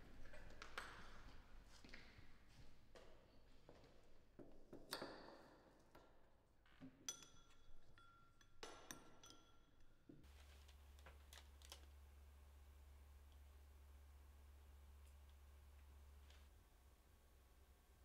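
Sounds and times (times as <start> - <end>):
small objects clicking and clinking: 6.9 - 12.0
steady low hum: 10.3 - 18.0.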